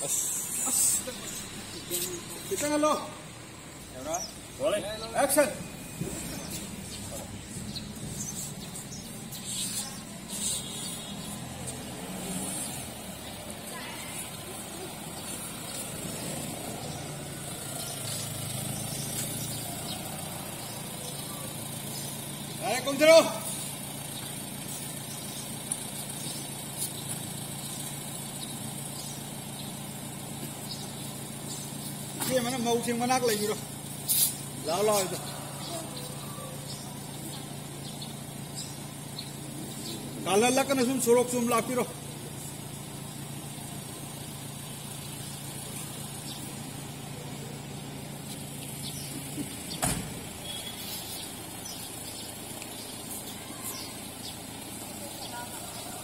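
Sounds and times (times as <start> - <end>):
car engine idling: 0.0 - 56.0
car doors clicking open: 49.7 - 50.3
sharp knock: 49.8 - 50.2.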